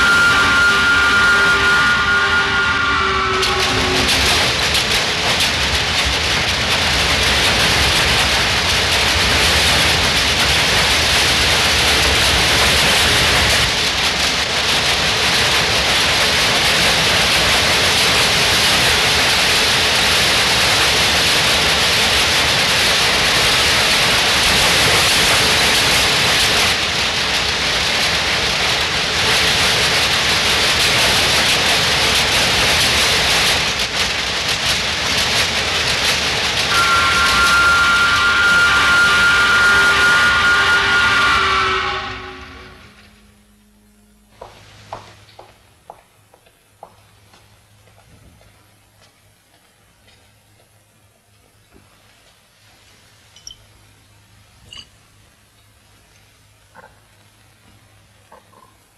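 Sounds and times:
textile looms clattering: 0:03.5 - 0:37.7.

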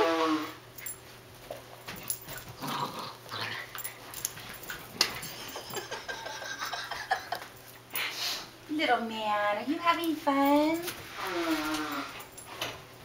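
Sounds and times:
dogs scuffling: 0:00.8 - 0:05.9.

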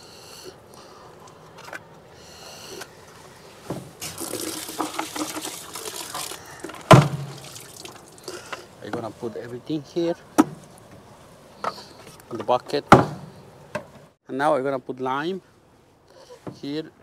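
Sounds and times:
water running into plastic bucket: 0:04.0 - 0:08.4
loud thump: 0:06.9 - 0:07.4.

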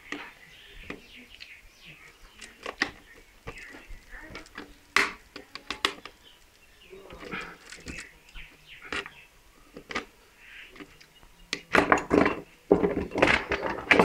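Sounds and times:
faint birds chirping: 0:00.0 - 0:14.0
plastic circuit breakers clicking: 0:02.4 - 0:06.4.

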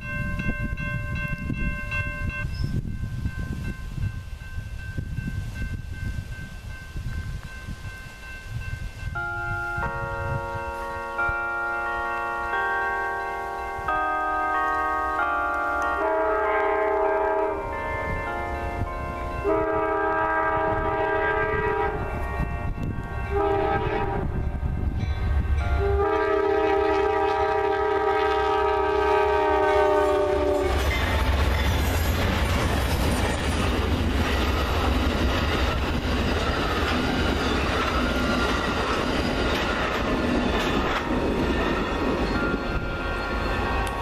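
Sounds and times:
locomotive horn blasts: 0:13.3 - 0:24.8, 0:25.6 - 0:31.0
train cars clattering on rails: 0:30.2 - 0:44.0.

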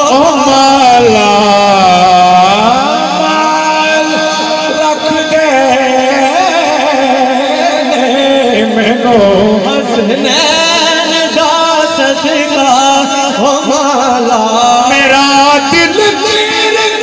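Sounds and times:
man singing through pa system: 0:00.0 - 0:17.0.

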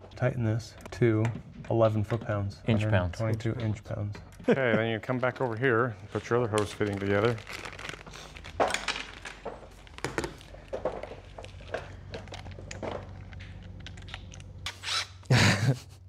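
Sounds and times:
plastic bag crinkling: 0:05.3 - 0:14.5.

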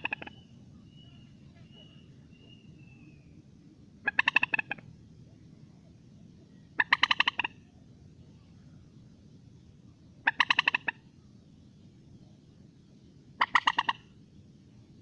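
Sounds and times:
moorhen calling: 0:00.0 - 0:03.4, 0:04.0 - 0:04.9, 0:06.4 - 0:07.8, 0:10.1 - 0:11.5, 0:13.4 - 0:14.2.

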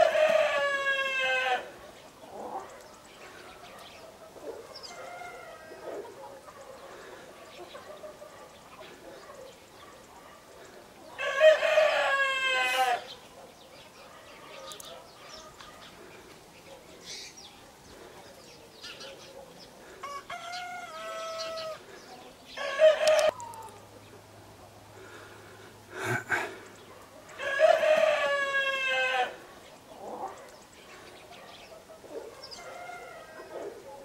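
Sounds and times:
roosters crowing: 0:00.0 - 0:02.7, 0:04.1 - 0:08.3, 0:11.1 - 0:13.2, 0:19.8 - 0:23.9, 0:27.2 - 0:30.4, 0:32.4 - 0:33.9.

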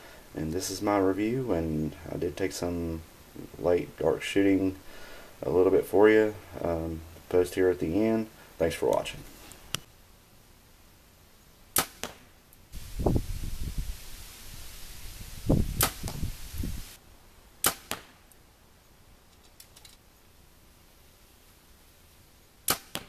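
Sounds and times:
bow shot cracks: 0:11.7 - 0:12.3, 0:15.8 - 0:16.3, 0:17.6 - 0:18.3, 0:22.6 - 0:23.0.

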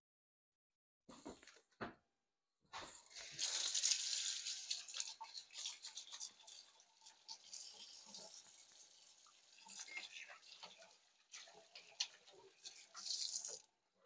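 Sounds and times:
small splashes and clicks: 0:03.1 - 0:13.7.

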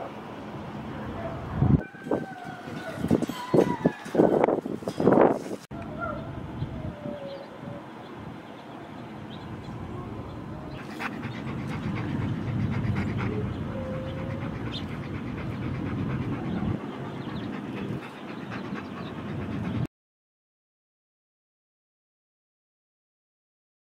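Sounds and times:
dog panting: 0:10.7 - 0:19.9.

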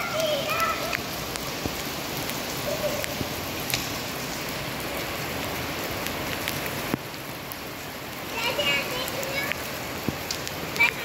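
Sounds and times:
light ticks: 0:09.1 - 0:11.0.

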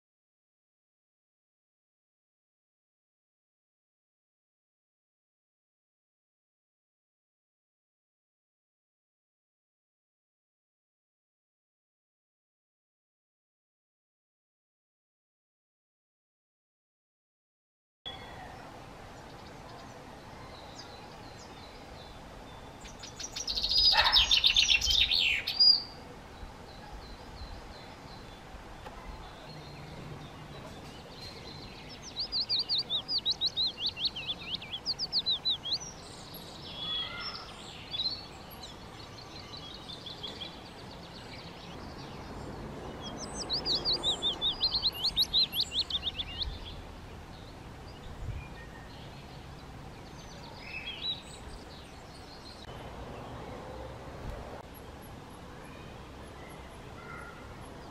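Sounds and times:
songbird singing: 0:18.1 - 0:57.9
short bird calls: 0:23.5 - 0:25.7, 0:36.8 - 0:37.6, 0:57.0 - 0:57.5.

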